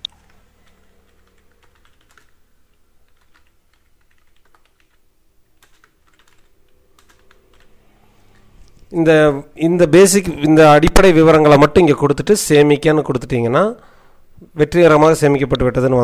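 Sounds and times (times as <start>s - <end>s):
computer keyboard typing: 0.0s - 5.0s, 5.6s - 8.9s.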